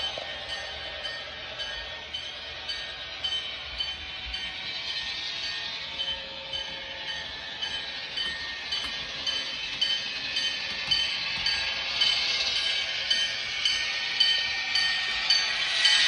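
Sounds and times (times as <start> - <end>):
locomotive bell ringing: 0.0 - 16.0.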